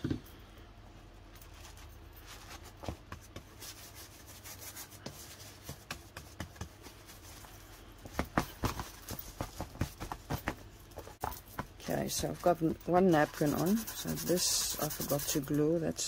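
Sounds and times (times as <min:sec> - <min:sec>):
paper napkin rubbing on cardboard: 0:13.0 - 0:15.6.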